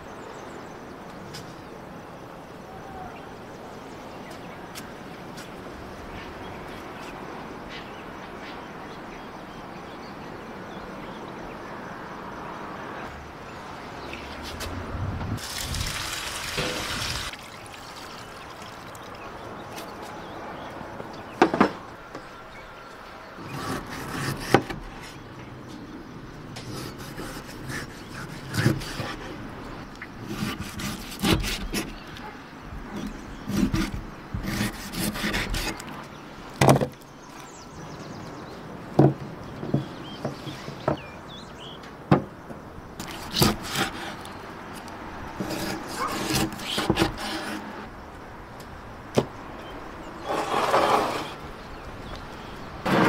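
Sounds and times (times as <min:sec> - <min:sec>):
wood scraping: 0:23.4 - 0:25.2, 0:30.2 - 0:32.3, 0:32.9 - 0:36.0, 0:43.0 - 0:47.9, 0:50.2 - 0:51.4
wooden knocks and taps: 0:39.0 - 0:41.1.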